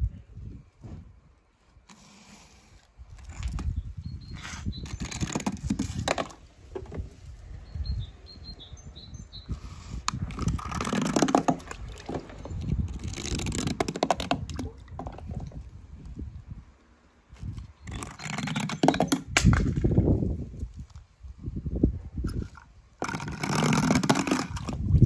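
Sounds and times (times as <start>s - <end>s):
toy car rattling over crayons: 4.8s - 6.4s, 10.2s - 15.4s, 17.8s - 19.8s, 22.3s - 24.8s.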